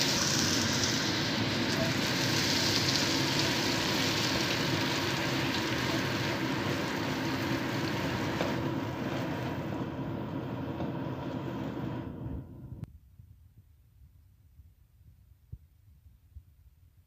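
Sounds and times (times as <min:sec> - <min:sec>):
onion and garlic sizzling in oil: 0:00.0 - 0:11.9.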